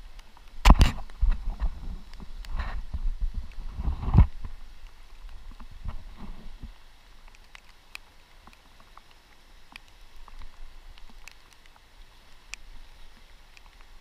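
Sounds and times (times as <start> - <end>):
wind on microphone: 0.0 - 6.8
raindrops ticking on camera: 0.0 - 14.0
microphone handling rumble: 0.6 - 4.6.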